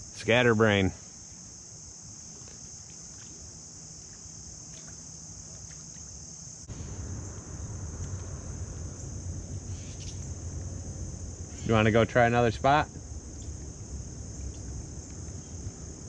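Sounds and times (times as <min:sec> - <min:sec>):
crickets chirping: 0:00.0 - 0:16.0
low rumble: 0:06.7 - 0:16.0.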